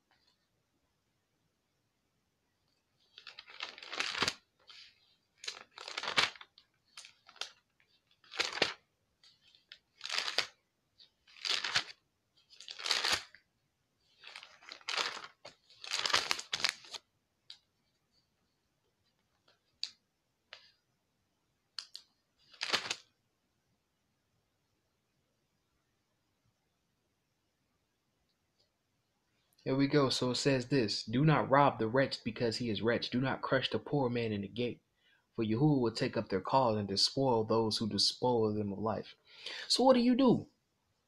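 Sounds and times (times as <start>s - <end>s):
thin paper pages rustling: 3.0s - 13.4s, 14.1s - 17.1s, 21.8s - 23.1s.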